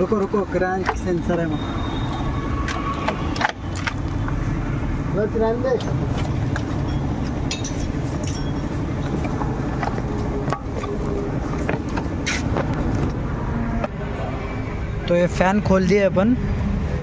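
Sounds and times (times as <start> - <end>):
metal clinks and knocks: 5.8 - 12.1.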